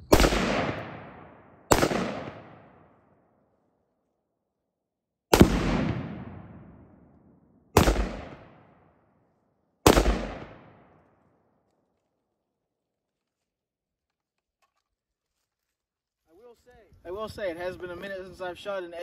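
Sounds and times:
exploding target booms: 0:00.0 - 0:02.9, 0:05.3 - 0:07.0, 0:07.8 - 0:08.9, 0:09.8 - 0:11.0.

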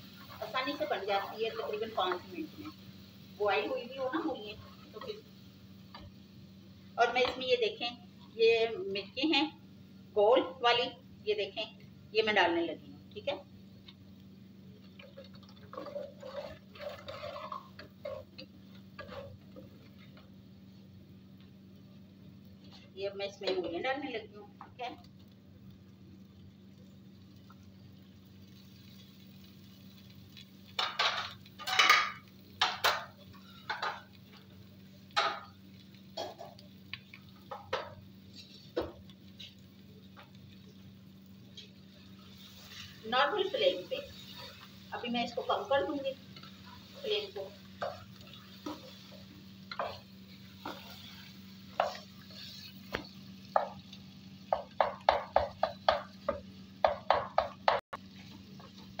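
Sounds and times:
faint steady hum: 0:00.0 - 0:59.0
wooden spoon scraping a pot: 0:14.9 - 0:20.2, 0:37.5 - 0:39.6, 0:41.5 - 0:53.9
plate utensils and pot clattering: 0:15.2 - 0:19.3, 0:30.8 - 0:34.1.

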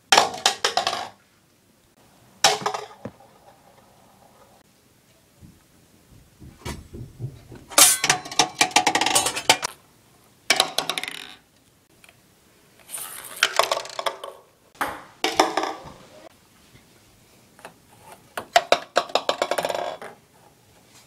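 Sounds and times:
ping pong balls bouncing: 0:02.5 - 0:03.2, 0:13.6 - 0:16.0
balls rattling into plastic cups: 0:10.5 - 0:11.4, 0:12.8 - 0:14.5, 0:18.6 - 0:20.2.

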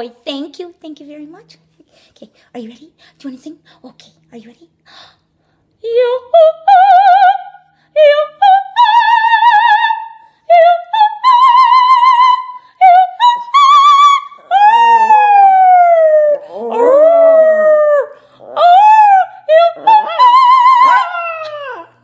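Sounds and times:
woman singing vocal exercises: 0:05.8 - 0:22.0
small dog howling: 0:14.2 - 0:22.0.

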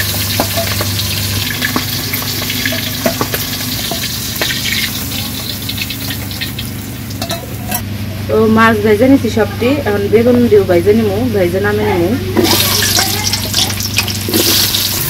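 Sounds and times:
fish sizzling in hot oil: 0:00.0 - 0:07.6, 0:12.4 - 0:15.0.

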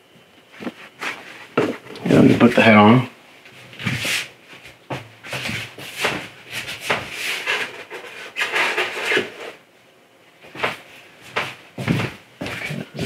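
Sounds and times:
rubbing and rustling of plastic parts: 0:05.3 - 0:09.6.

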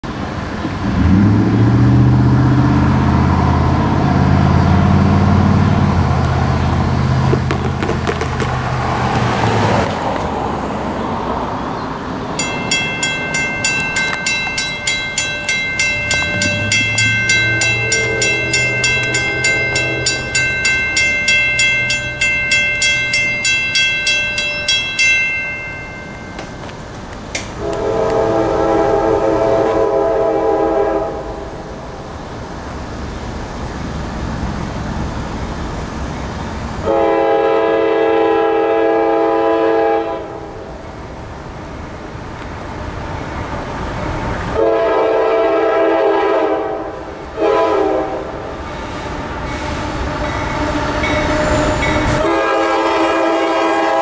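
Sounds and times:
distant train horn: 0:12.4 - 0:26.7, 0:27.5 - 0:31.7, 0:36.8 - 0:40.7, 0:44.5 - 0:54.0
railroad crossing bell ringing: 0:12.4 - 0:28.1, 0:48.4 - 0:54.0.

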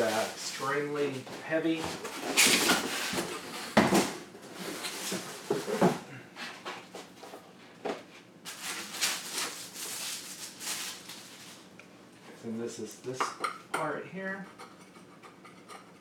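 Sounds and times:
cardboard and foam rustling: 0:00.0 - 0:06.0, 0:08.5 - 0:11.7.

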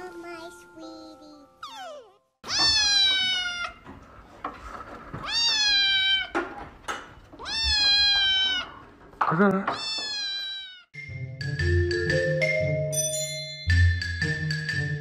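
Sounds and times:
kitten meowing: 0:01.6 - 0:03.8, 0:05.2 - 0:06.4, 0:07.4 - 0:08.8, 0:09.8 - 0:10.9.

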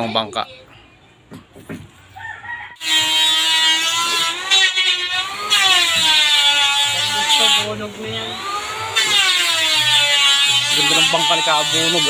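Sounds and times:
small motor whining: 0:02.8 - 0:12.0.

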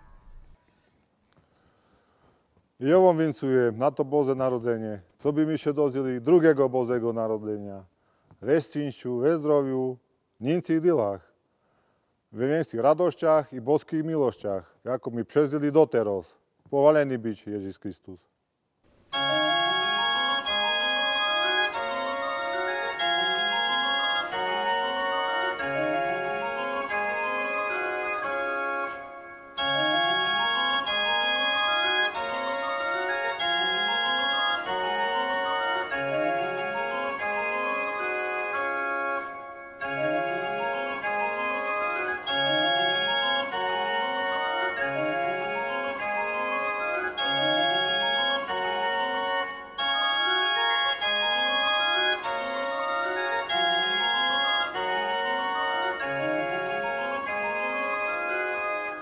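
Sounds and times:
pipe organ playing: 0:19.1 - 0:59.0.

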